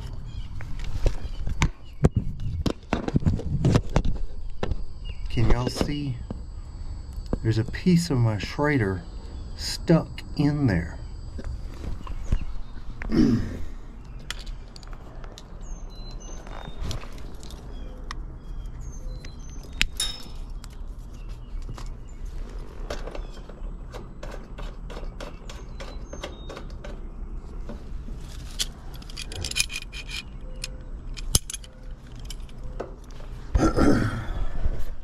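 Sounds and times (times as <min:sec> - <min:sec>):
rustling and handling noise: 0:00.0 - 0:08.5, 0:16.3 - 0:18.0, 0:27.5 - 0:30.3
metal tools clinking: 0:20.0 - 0:20.7, 0:28.3 - 0:32.7.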